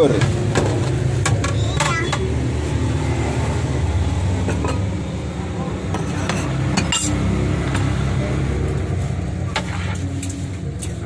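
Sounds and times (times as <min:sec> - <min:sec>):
ladle scraping metal pot: 0:05.8 - 0:07.3, 0:09.5 - 0:11.0.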